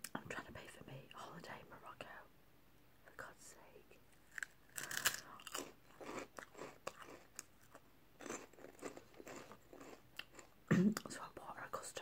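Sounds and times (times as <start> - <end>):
crisp being crunched: 4.3 - 10.4.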